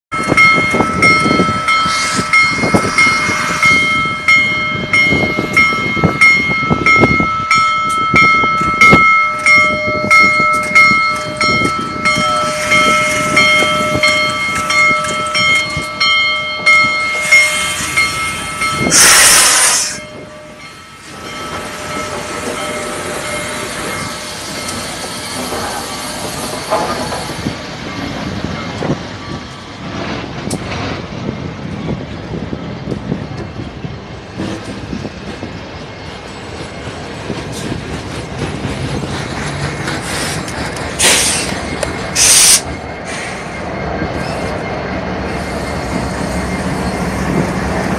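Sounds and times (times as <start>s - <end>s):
steady high-pitched tone: 0.1s - 29.8s
locomotive rumble: 0.1s - 47.9s
steam locomotive chuffing: 0.3s - 7.0s, 7.8s - 31.4s, 34.0s - 47.9s
loud hiss of steam: 1.7s - 4.0s, 17.0s - 20.2s, 39.9s - 43.6s.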